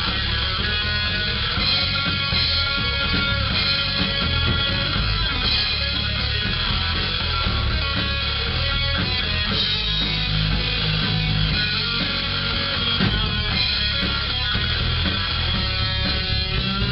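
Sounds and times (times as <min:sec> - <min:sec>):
rock music with guitar and drums: 0:00.0 - 0:16.9.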